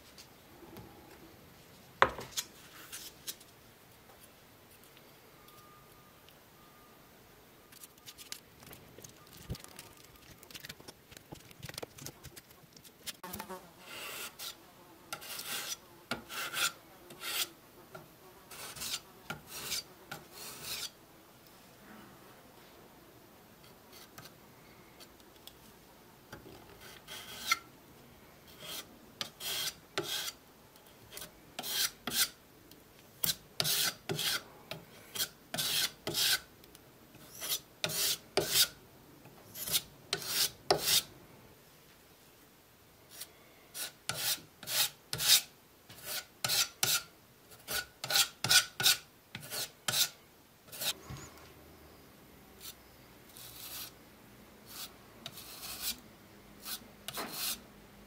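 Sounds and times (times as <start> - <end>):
putty knife scraping wood: 15.2 - 17.5, 18.5 - 20.9, 26.8 - 27.6, 28.6 - 30.4, 31.1 - 32.4, 33.2 - 34.4, 35.1 - 36.4, 37.2 - 38.7, 39.6 - 41.1, 43.2 - 51.0, 56.6 - 57.6.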